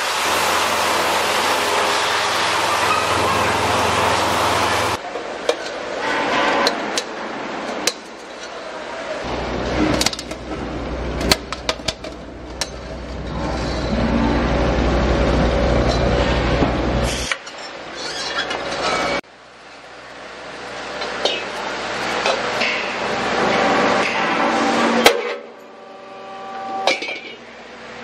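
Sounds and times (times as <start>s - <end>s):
machine humming: 0.0s - 5.0s, 9.2s - 17.0s.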